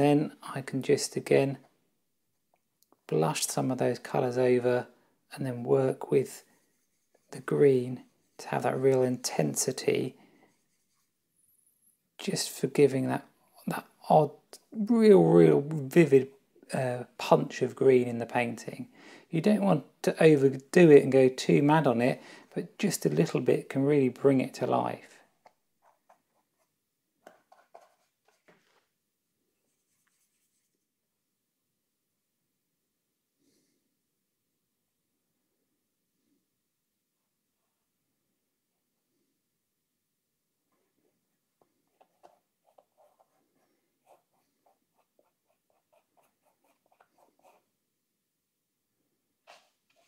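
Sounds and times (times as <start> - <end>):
paintbrush scratching on canvas: 6.2 - 11.6, 25.8 - 28.5, 29.6 - 30.9, 41.9 - 47.8.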